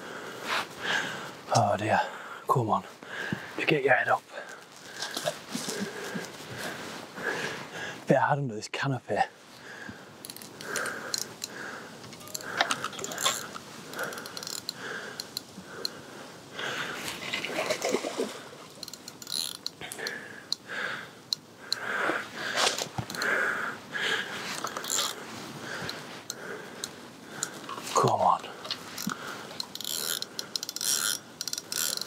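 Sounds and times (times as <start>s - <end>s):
fishing reel ticking: 10.2s - 16.0s, 18.7s - 21.9s, 23.0s - 23.4s, 24.6s - 25.2s, 29.0s - 32.0s
water splashing: 17.2s - 18.6s.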